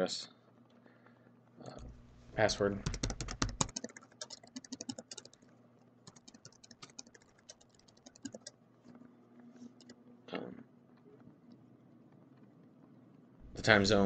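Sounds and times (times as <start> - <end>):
computer keyboard typing: 2.8 - 8.6.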